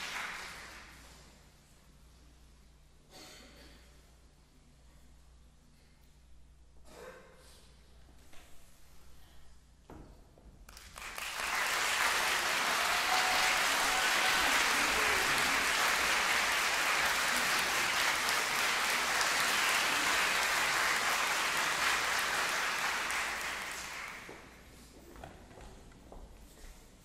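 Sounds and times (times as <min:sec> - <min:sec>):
audience applauding: 0:00.0 - 0:01.1, 0:10.7 - 0:24.5.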